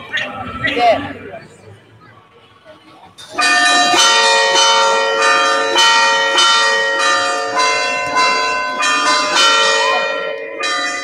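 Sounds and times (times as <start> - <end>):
church bells pealing: 3.2 - 11.0.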